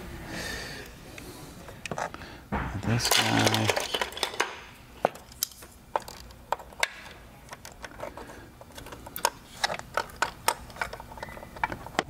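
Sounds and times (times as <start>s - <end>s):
tools clicking and knocking: 2.8s - 12.0s.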